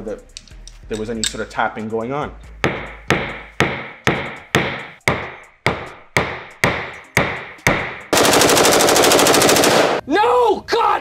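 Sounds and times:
machine-gun fire: 0:08.1 - 0:10.0.

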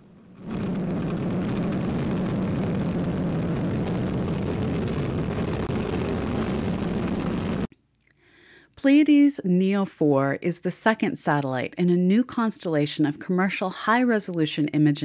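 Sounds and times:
rocket launch roar: 0:00.0 - 0:07.7.

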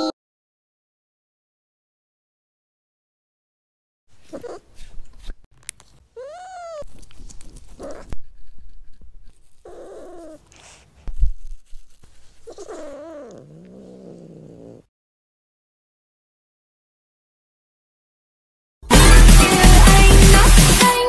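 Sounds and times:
cat meowing: 0:06.2 - 0:06.9.

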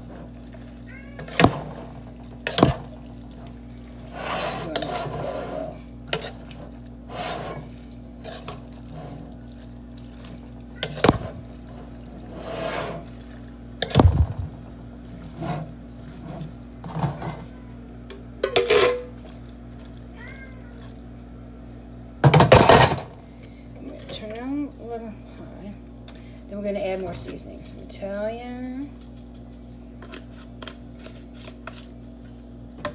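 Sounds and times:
low hum: 0:13.0 - 0:26.5.

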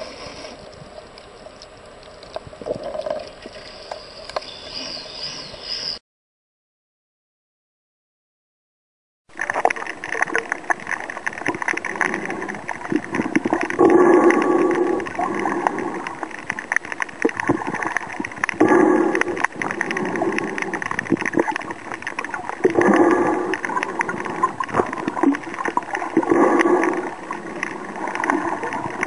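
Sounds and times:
underwater crackling hiss: 0:00.0 - 0:00.7, 0:09.6 - 0:29.0
water gurgling surges: 0:09.4 - 0:29.0.

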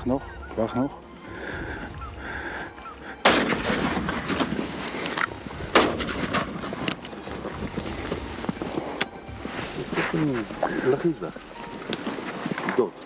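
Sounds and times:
rifle shots with echo: 0:03.2 - 0:04.6.

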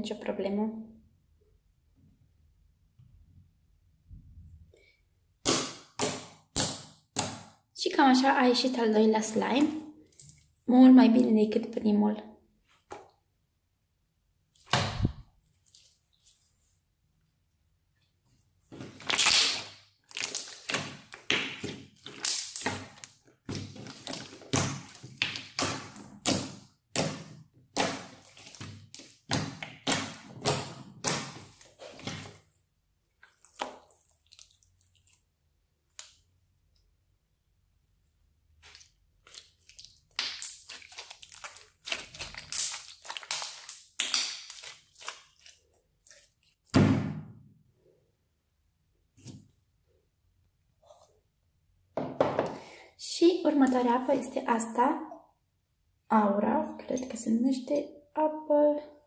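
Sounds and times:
slime squishing and popping: 0:18.8 - 0:32.4, 0:38.6 - 0:45.6
slime thump on wooden table: 0:46.7 - 0:47.4.

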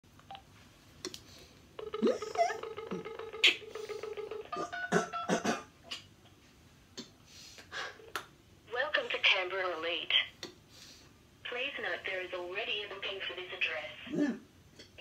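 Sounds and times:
keypad dialling tones: 0:01.8 - 0:05.3
phone dial tone: 0:01.8 - 0:05.3.

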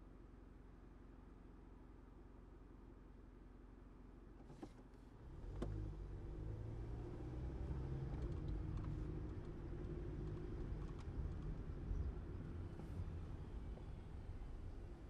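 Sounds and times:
car engine and road rumble: 0:04.4 - 0:15.0.

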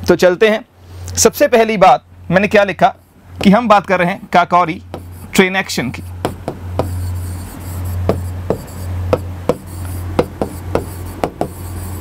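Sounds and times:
low electrical hum: 0:00.0 - 0:12.0
chalk tapping and scratching: 0:03.0 - 0:03.9, 0:04.8 - 0:12.0.

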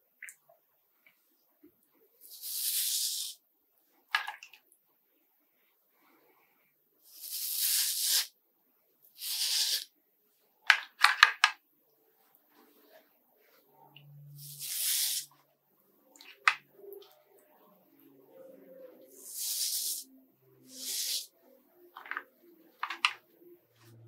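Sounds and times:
shaving brush swishing lather: 0:14.3 - 0:15.4, 0:18.8 - 0:21.4.

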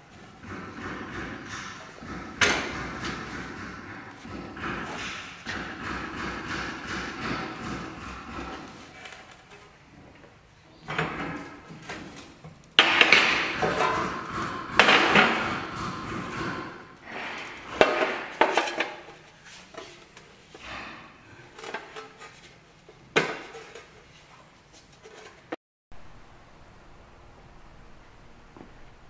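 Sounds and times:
tools and metal parts clattering: 0:10.8 - 0:24.2.

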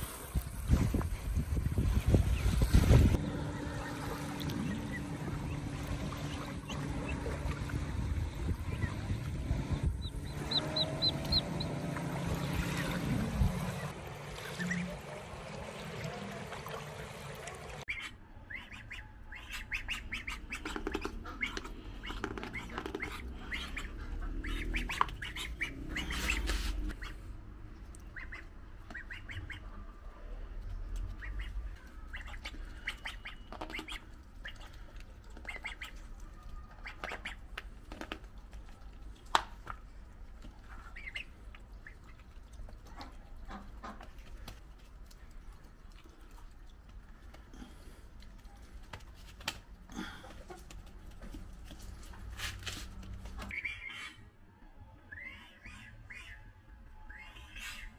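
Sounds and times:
duck bill pecking: 0:17.9 - 0:27.1, 0:28.1 - 0:29.6, 0:31.0 - 0:39.8
duck quacking: 0:17.9 - 0:27.2, 0:28.1 - 0:29.7.

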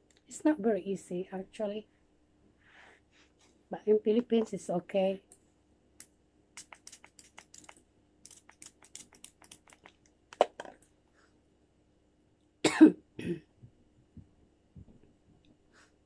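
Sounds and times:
pedicure tool clicks and scrapes: 0:06.6 - 0:10.5
person coughing: 0:12.6 - 0:13.5.

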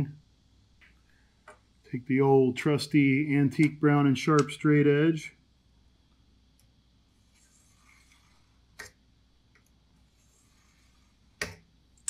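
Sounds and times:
scribe scratching sheet metal: 0:07.2 - 0:08.5, 0:10.1 - 0:11.2.

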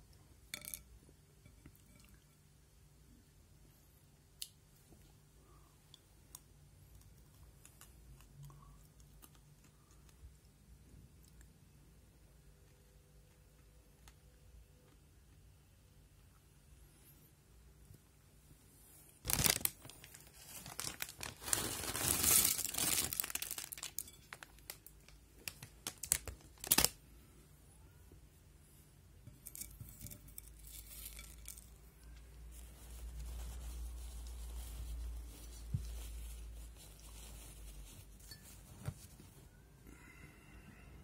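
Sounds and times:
plastic packet crinkling and tearing: 0:19.2 - 0:27.0
plastic packet rustling: 0:19.2 - 0:27.0.

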